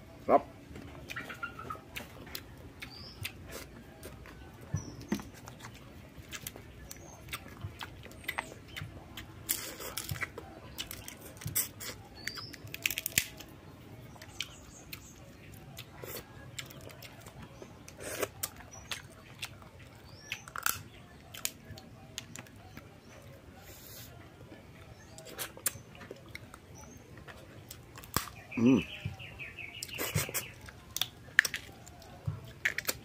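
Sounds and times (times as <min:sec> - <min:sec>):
chewing and lip-smacking: 0:00.8 - 0:13.5, 0:14.1 - 0:29.0, 0:29.7 - 0:33.0
crab shells cracking: 0:09.5 - 0:13.5, 0:20.2 - 0:22.8, 0:27.7 - 0:28.4, 0:30.3 - 0:33.0
faint bird chirps: 0:28.4 - 0:30.7.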